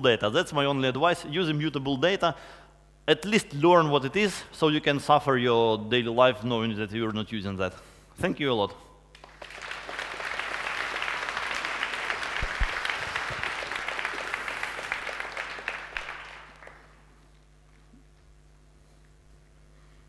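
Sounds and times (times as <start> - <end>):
audience applauding: 9.1 - 17.4.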